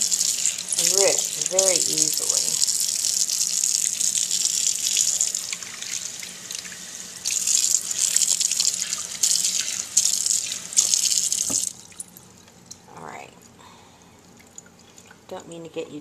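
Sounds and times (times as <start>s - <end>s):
water splashing over wet paper: 0.0s - 12.0s
tap water running into a pot: 0.0s - 12.7s.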